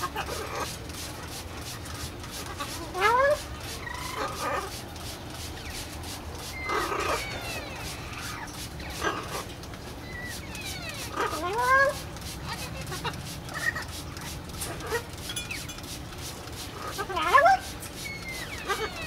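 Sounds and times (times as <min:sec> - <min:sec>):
spray bottle squirts: 0:00.0 - 0:19.0
macaw calling: 0:02.4 - 0:04.8, 0:06.4 - 0:13.9, 0:16.8 - 0:19.0.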